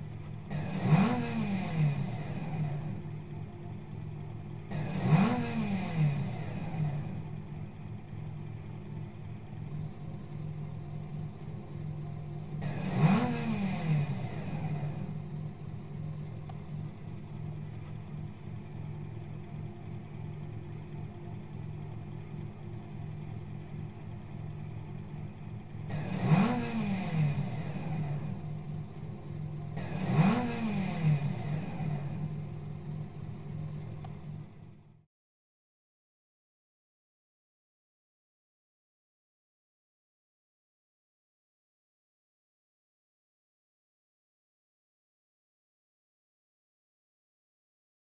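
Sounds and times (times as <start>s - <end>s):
car engine idling and revving: 0.0s - 35.0s.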